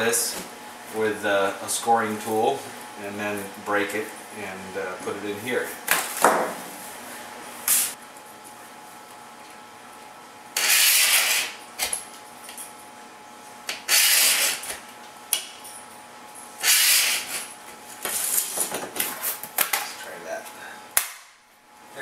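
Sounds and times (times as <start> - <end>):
scoring tool scraping acrylic sheet: 10.6 - 11.6, 13.7 - 14.8, 16.6 - 17.5.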